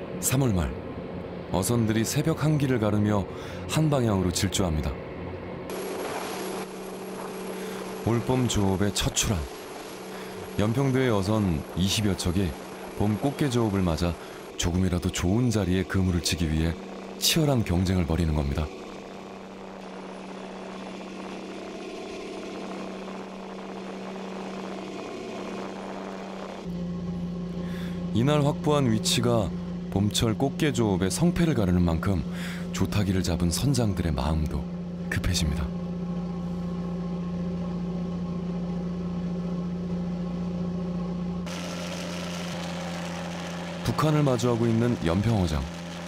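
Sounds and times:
boat engine drone: 0:00.0 - 0:46.0
rushing water noise: 0:05.7 - 0:15.6.

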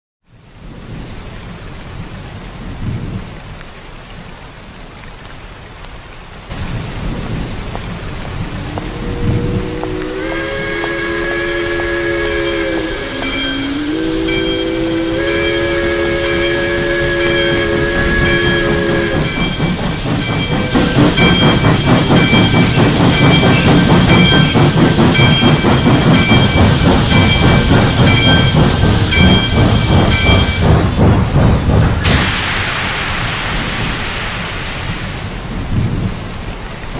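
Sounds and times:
steady rainfall: 0:00.2 - 0:36.9
water drips: 0:02.8 - 0:36.9
low rumble of thunder: 0:06.5 - 0:10.8, 0:16.2 - 0:36.9
steam locomotive chuffing: 0:06.8 - 0:36.9.

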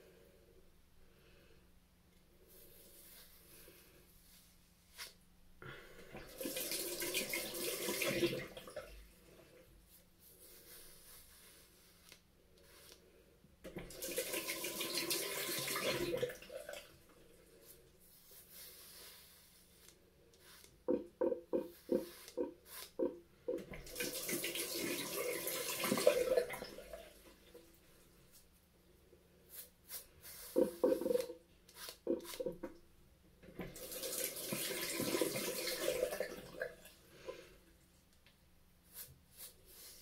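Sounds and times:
razor rinsed under tap: 0:06.2 - 0:08.9, 0:13.7 - 0:17.0, 0:20.4 - 0:27.2, 0:30.3 - 0:32.8, 0:33.6 - 0:37.0
tap running: 0:20.9 - 0:24.5, 0:30.6 - 0:31.4.

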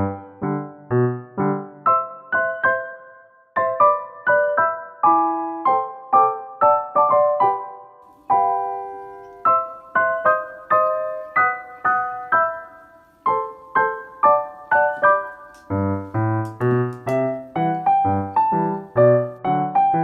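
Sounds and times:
piano melody: 0:00.0 - 0:20.0
low piano bass notes: 0:08.1 - 0:20.0.

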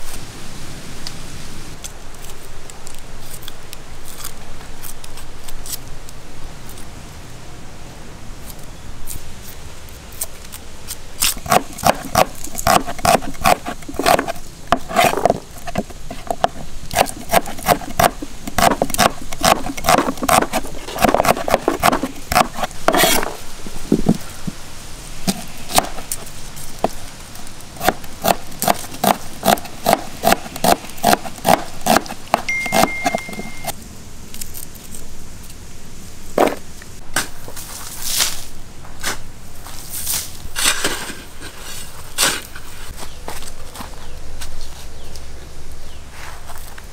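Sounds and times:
cleaver chopping on wooden board: 0:11.4 - 0:23.4, 0:25.3 - 0:26.0, 0:27.8 - 0:33.4.

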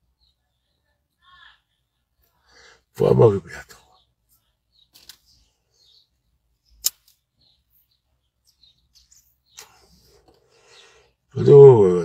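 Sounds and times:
sharp click: 0:06.8 - 0:07.2.

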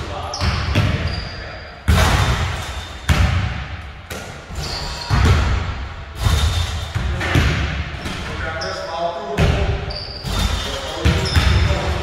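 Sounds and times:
basketballs bouncing on hardwood floor: 0:00.4 - 0:01.2, 0:01.9 - 0:04.2, 0:05.1 - 0:08.2, 0:09.4 - 0:12.0.

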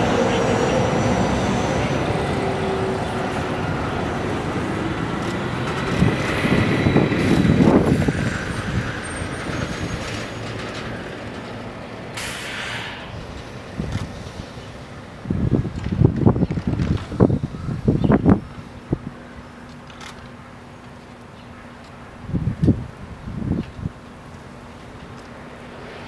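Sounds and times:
tram rolling and braking: 0:00.0 - 0:26.0
short hiss: 0:12.2 - 0:14.6.

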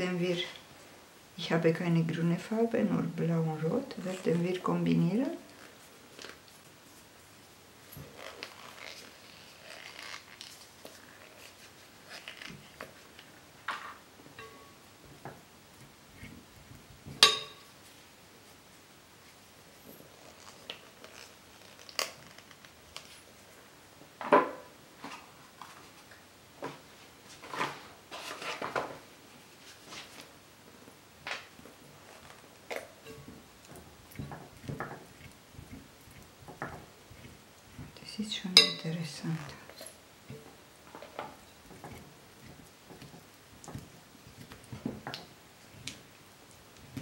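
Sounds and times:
spoon tapping glass bowl: 0:17.2 - 0:17.7, 0:38.5 - 0:38.9
rustles and taps: 0:29.6 - 0:47.0
spoon stirring wet slime: 0:32.0 - 0:47.0.

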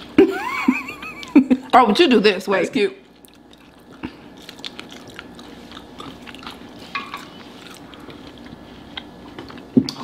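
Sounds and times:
faint steady hum: 0:00.0 - 0:10.0
chewing with crunches: 0:03.0 - 0:10.0.

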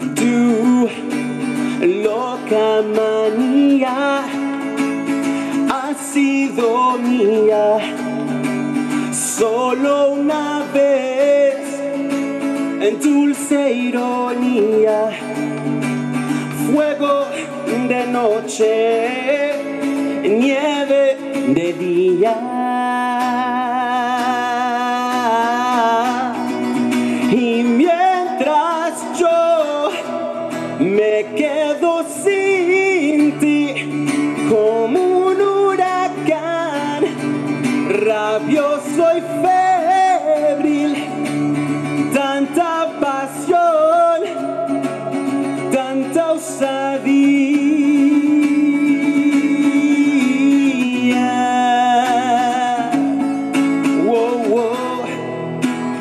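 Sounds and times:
man singing: 0:00.0 - 0:56.0.

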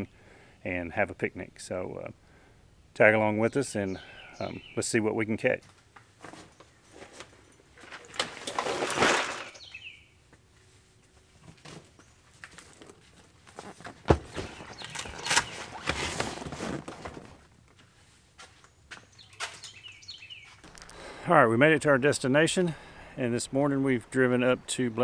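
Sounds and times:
birds chirping faintly: 0:00.0 - 0:07.4, 0:09.3 - 0:11.2, 0:14.2 - 0:16.1, 0:18.5 - 0:25.0
rustling of fabric and straps: 0:05.6 - 0:09.6, 0:10.4 - 0:21.2.

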